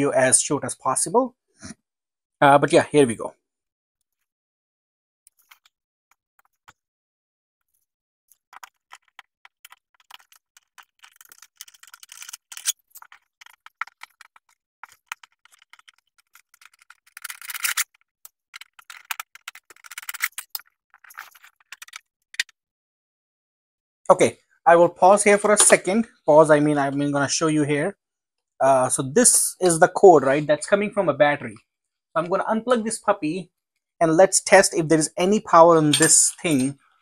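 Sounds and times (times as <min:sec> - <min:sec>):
tool and plastic clicks and rattles: 0:08.3 - 0:22.5.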